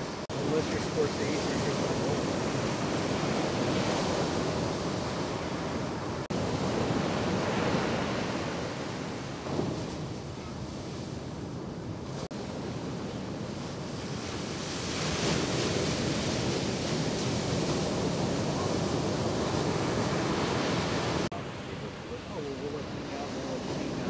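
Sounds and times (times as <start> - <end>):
waves breaking on shore: 0.0 - 24.0
wind buffeting microphone: 0.0 - 24.0.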